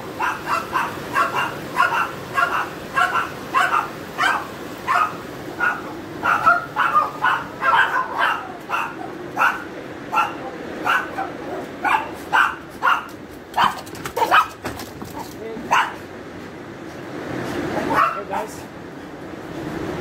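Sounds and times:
dog barking: 0:00.1 - 0:14.6, 0:15.7 - 0:16.0, 0:17.9 - 0:18.3.

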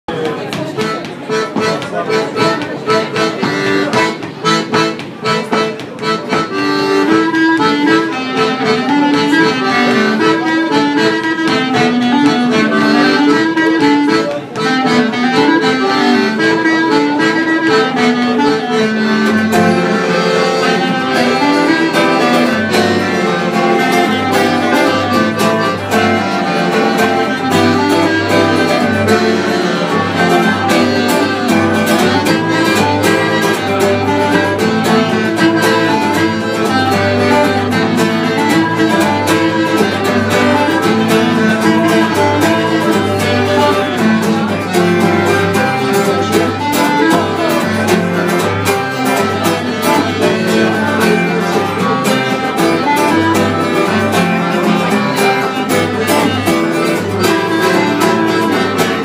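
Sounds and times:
button accordion: 0:00.1 - 0:59.0
clarinet: 0:00.1 - 0:59.0
guitar accompaniment: 0:00.1 - 0:59.0.

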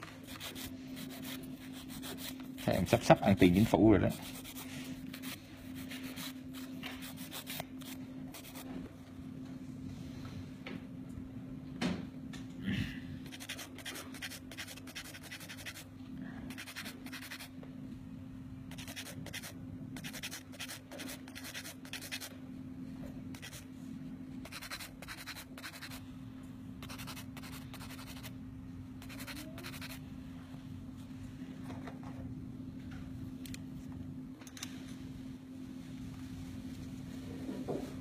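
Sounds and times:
nail file scratching: 0:00.2 - 0:02.5, 0:04.1 - 0:08.6, 0:13.2 - 0:15.9, 0:16.5 - 0:17.5, 0:18.7 - 0:22.3, 0:23.4 - 0:23.6, 0:24.4 - 0:26.0, 0:26.8 - 0:28.3, 0:29.0 - 0:30.0.

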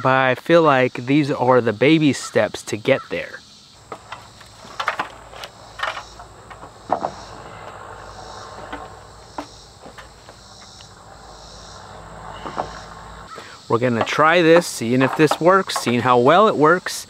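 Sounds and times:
insects chorus: 0:00.0 - 0:17.0
wooden boards knocking: 0:03.9 - 0:10.4, 0:12.4 - 0:16.4.

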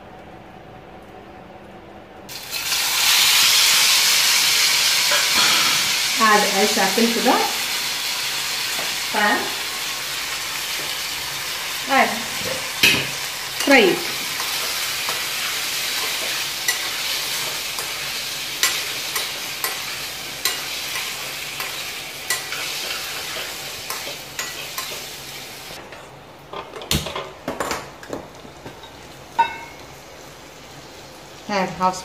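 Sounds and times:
fruit sizzling in oil: 0:02.3 - 0:25.8
steel spoon scraping a pan: 0:13.6 - 0:25.1.

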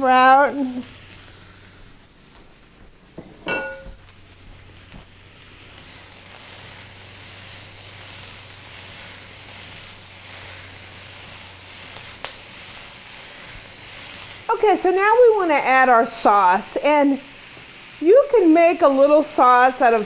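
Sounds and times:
vegetables sizzling in a wok: 0:00.0 - 0:20.0
clink: 0:03.5 - 0:04.0.

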